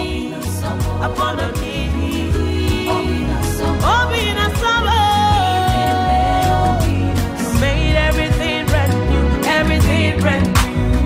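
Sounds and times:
person singing: 0.0s - 11.0s
song with steady bass beat: 0.0s - 11.0s.

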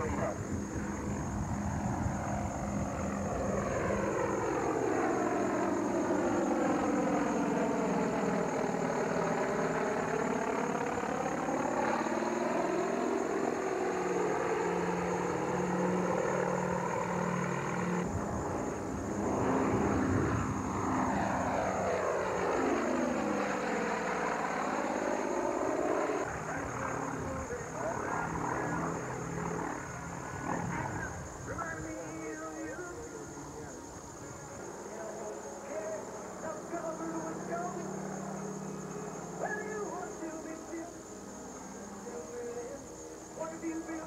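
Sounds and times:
aircraft engines whooshing pass: 0.0s - 44.0s.

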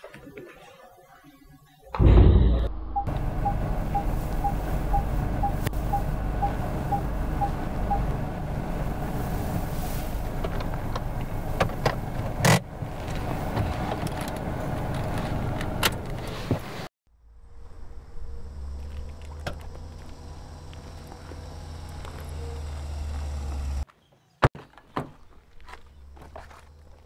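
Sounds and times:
loud thump: 2.0s - 2.8s
short beeps: 2.3s - 8.1s
car engine idling: 2.9s - 16.2s.

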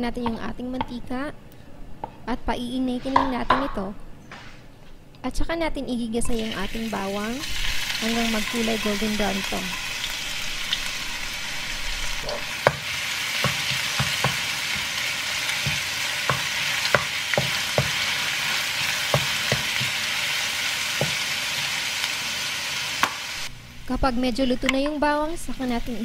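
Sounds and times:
garlic sizzling in oil: 6.3s - 23.6s, 24.5s - 26.0s
wooden spoon knocking pan: 12.6s - 20.1s, 20.9s - 21.8s.

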